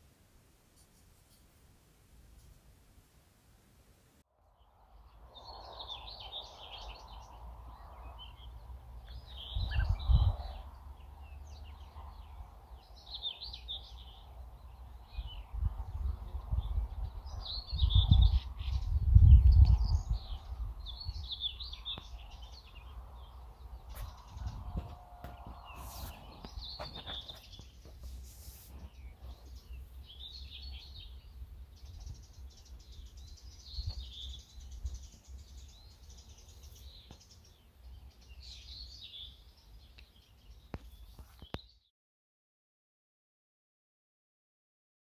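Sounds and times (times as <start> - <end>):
songbirds chirping: 0.0 - 41.9
wind buffeting microphone: 5.1 - 28.0.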